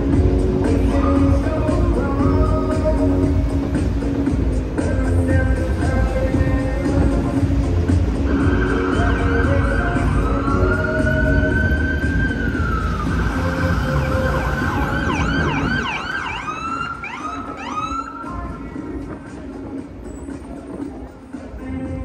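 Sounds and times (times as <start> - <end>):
low traffic rumble: 0.0 - 22.0
emergency vehicle siren: 8.2 - 18.7.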